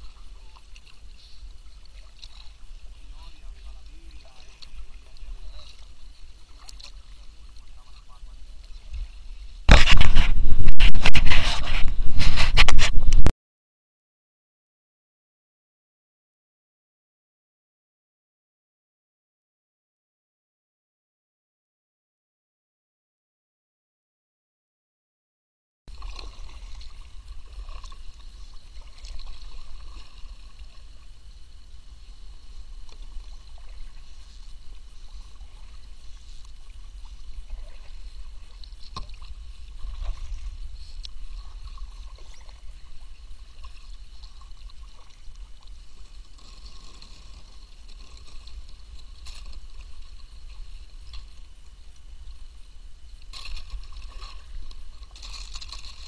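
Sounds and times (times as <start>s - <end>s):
paddle dipping and dripping: 0.0s - 13.1s, 25.9s - 56.0s
water lapping at hull: 0.0s - 13.3s, 25.9s - 56.0s.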